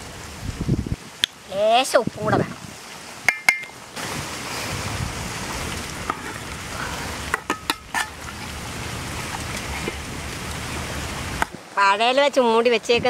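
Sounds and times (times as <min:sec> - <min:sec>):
pot boiling with hiss: 0:00.0 - 0:13.0.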